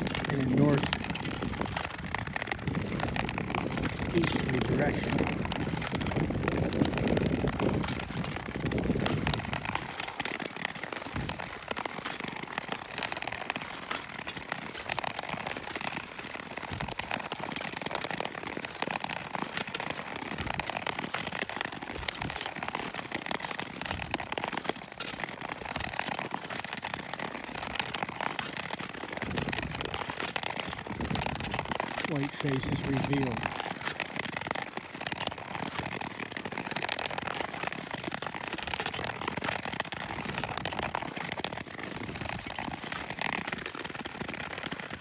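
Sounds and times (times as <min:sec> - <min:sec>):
wind rumble on microphone: 0:00.0 - 0:10.0, 0:11.2 - 0:11.4, 0:29.2 - 0:30.0, 0:30.7 - 0:33.6
ice skates scraping over ice: 0:00.0 - 0:45.0.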